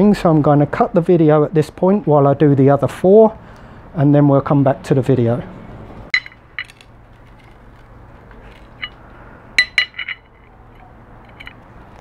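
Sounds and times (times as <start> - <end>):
metal tool clinking on metal: 6.1 - 7.6, 8.4 - 11.7.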